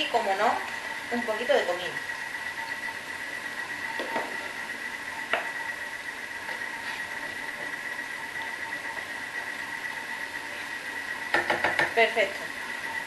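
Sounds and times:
onion sizzling in a pan: 0:00.0 - 0:13.0
wooden spoon tapping pan: 0:11.3 - 0:12.0.

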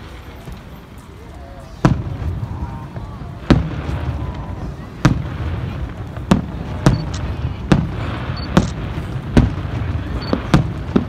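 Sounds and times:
firework shells bursting: 0:05.0 - 0:11.0.

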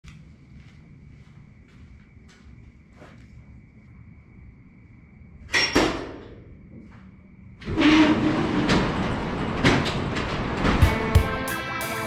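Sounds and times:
metal door clunks: 0:05.5 - 0:06.4, 0:07.7 - 0:11.2
roll-up door rattling rumble: 0:07.6 - 0:11.2.

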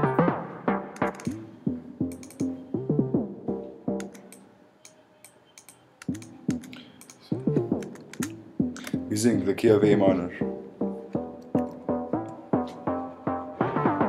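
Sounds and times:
synthesizer melody with pitch bends: 0:00.0 - 0:04.3, 0:07.3 - 0:14.0
mouse clicks: 0:02.1 - 0:02.6, 0:04.0 - 0:09.0.

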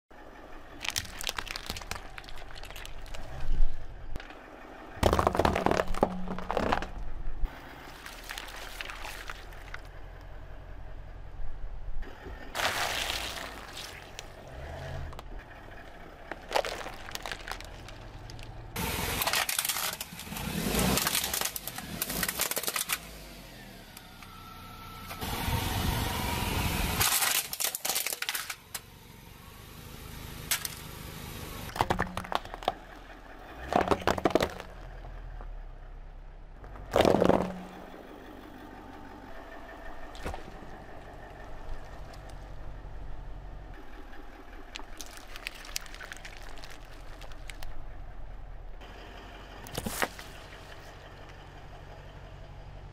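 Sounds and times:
car engine humming low: 0:00.1 - 0:27.1, 0:28.2 - 0:52.9
tyre crushing objects: 0:00.8 - 0:03.6, 0:05.0 - 0:07.0, 0:12.6 - 0:14.3, 0:16.3 - 0:18.5, 0:31.7 - 0:32.8, 0:33.6 - 0:35.1, 0:36.8 - 0:37.9, 0:40.1 - 0:40.8, 0:44.8 - 0:47.6, 0:49.7 - 0:50.6.

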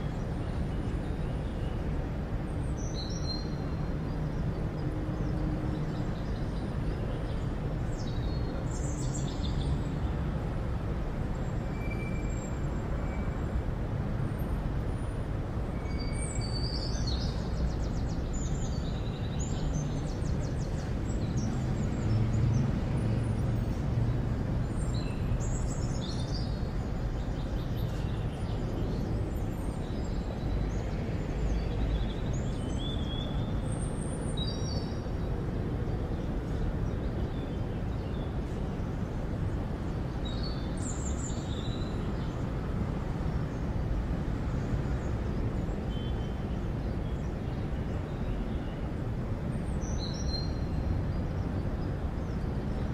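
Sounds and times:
distant traffic rumble: 0:12.4 - 0:52.9.

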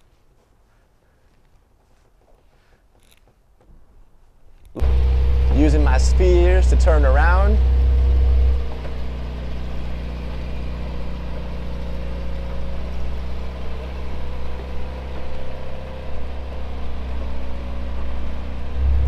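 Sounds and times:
car driving slowly with low hum: 0:04.6 - 0:19.0
faint wavering whine: 0:04.8 - 0:14.9.

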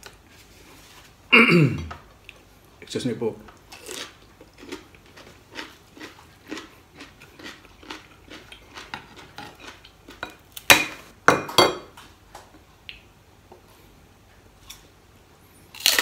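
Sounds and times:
chewing with mouth clicks: 0:03.7 - 0:10.2
crispy pork skin snapping: 0:15.8 - 0:16.0.

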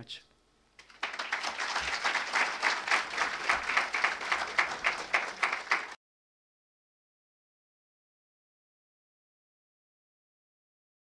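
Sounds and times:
audience applauding: 0:00.8 - 0:06.0.

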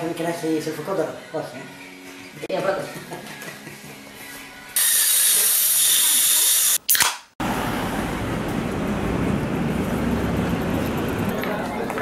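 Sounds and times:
dental equipment hiss: 0:04.8 - 0:06.8
busy pedestrian street hubbub: 0:07.5 - 0:12.0.

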